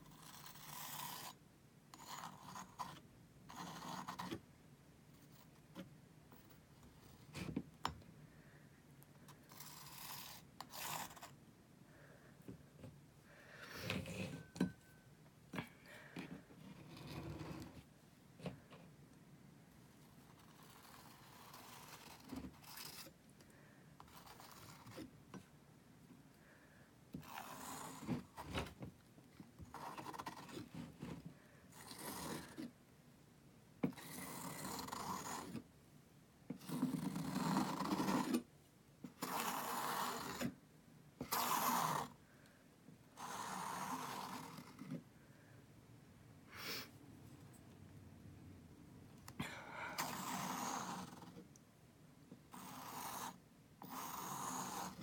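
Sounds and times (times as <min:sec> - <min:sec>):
palette knife scraping paint: 0:00.0 - 0:04.5, 0:09.2 - 0:11.4, 0:13.6 - 0:14.8, 0:16.0 - 0:18.6, 0:20.0 - 0:23.2, 0:24.0 - 0:25.5, 0:27.1 - 0:28.8, 0:29.4 - 0:32.8, 0:33.9 - 0:35.7, 0:36.5 - 0:38.5, 0:39.1 - 0:40.6, 0:41.2 - 0:42.2, 0:43.2 - 0:45.0, 0:50.0 - 0:51.5, 0:52.5 - 0:55.0.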